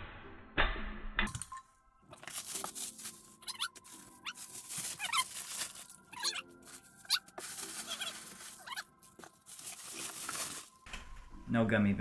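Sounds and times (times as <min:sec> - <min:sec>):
paper and plastic wrap rustling: 0:02.1 - 0:11.2.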